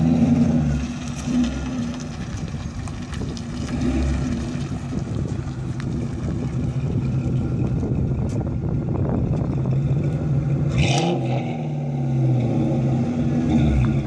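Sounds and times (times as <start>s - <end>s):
loud raspy car exhaust: 0.0s - 14.0s.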